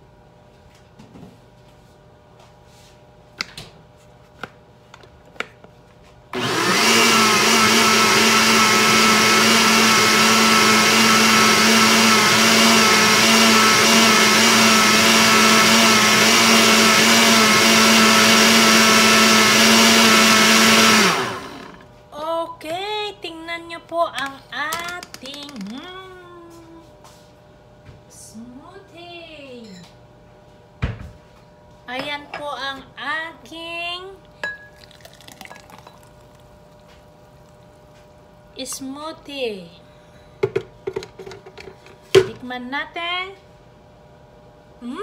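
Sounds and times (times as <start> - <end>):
blender whirring: 6.3 - 21.9.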